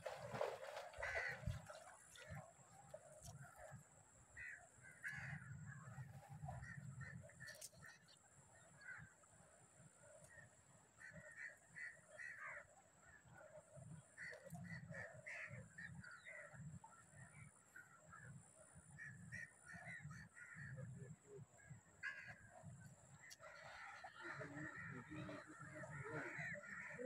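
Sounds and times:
flock of birds calling: 0:23.3 - 0:27.0.

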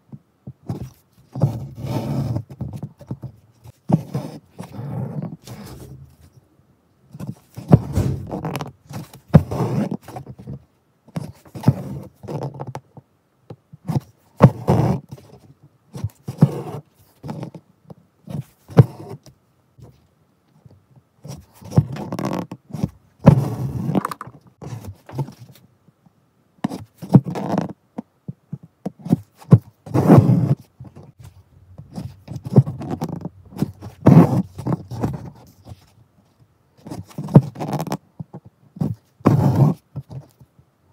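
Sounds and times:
needle and thread through fabric: 0:00.6 - 0:06.4, 0:21.2 - 0:25.7, 0:28.6 - 0:40.5
fingers scraping cloth: 0:03.6 - 0:06.4, 0:07.2 - 0:10.2, 0:29.0 - 0:36.0, 0:36.8 - 0:38.0, 0:38.8 - 0:40.3.

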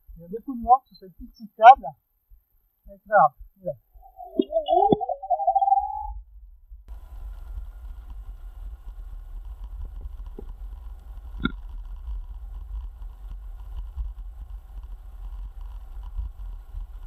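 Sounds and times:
faint steady whine: 0:00.0 - 0:17.0
short high chirp: 0:04.0 - 0:06.2
wind and road rumble: 0:06.7 - 0:17.0.

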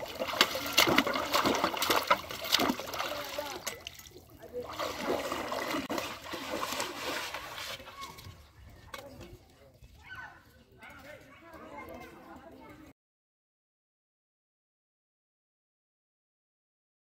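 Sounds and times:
river water splashing: 0:00.0 - 0:08.2
sloshing wading footsteps: 0:00.0 - 0:09.3.

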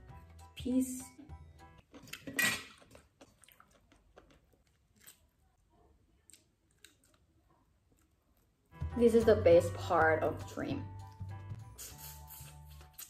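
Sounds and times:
faint chewing: 0:01.8 - 0:08.7
wet mouth sound: 0:11.8 - 0:13.0.

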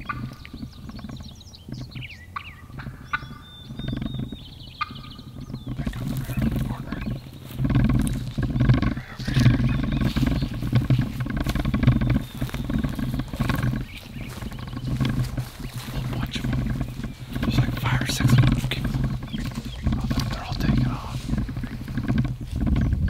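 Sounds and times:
songbirds chirping: 0:00.0 - 0:23.0
wind rumbling on microphone: 0:00.0 - 0:23.0
footsteps through dry leaves: 0:05.7 - 0:22.6.

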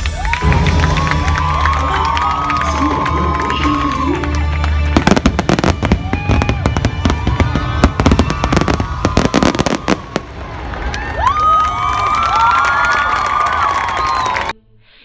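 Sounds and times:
loud show music: 0:00.0 - 0:09.8
fireworks bangs and crackling: 0:00.0 - 0:12.4.

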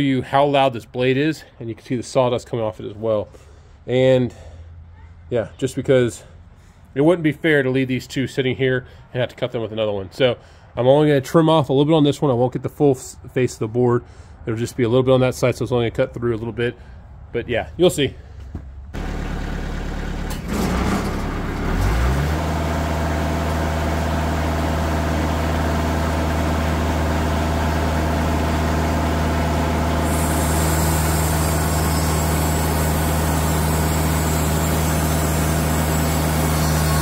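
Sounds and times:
sawmill engine running: 0:19.0 - 0:37.0
bandsaw blade cutting log: 0:29.8 - 0:37.0.

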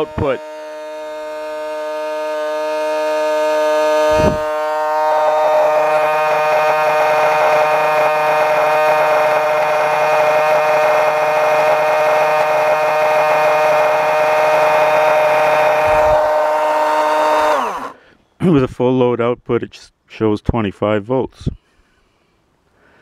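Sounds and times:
low bump: 0:00.0 - 0:09.7
electric motor whine: 0:00.0 - 0:18.0.

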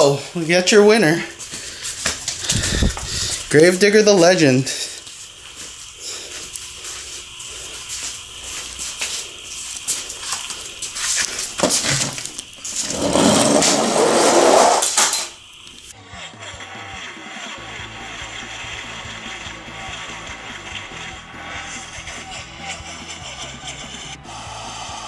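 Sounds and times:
toy truck clattering on plastic track: 0:11.6 - 0:15.4
toy truck rolling fast down track: 0:12.8 - 0:15.4, 0:16.0 - 0:24.2.

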